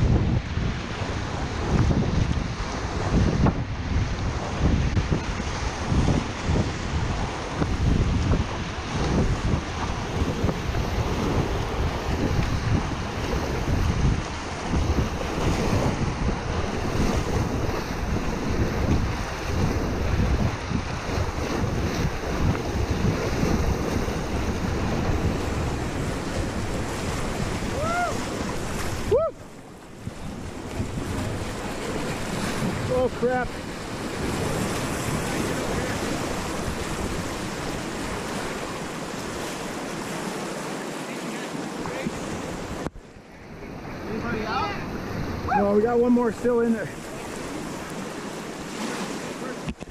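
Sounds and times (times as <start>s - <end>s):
wind buffeting microphone: 0.0s - 40.6s, 41.6s - 49.9s
water slapping hull: 0.0s - 49.9s
whitewater rushing: 0.0s - 49.9s
paddle strokes splashing: 0.4s - 49.9s.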